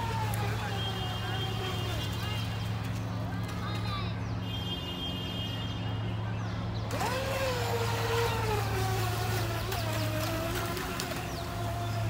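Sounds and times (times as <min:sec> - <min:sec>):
model boat motor whining: 0:00.0 - 0:03.4, 0:06.6 - 0:12.0.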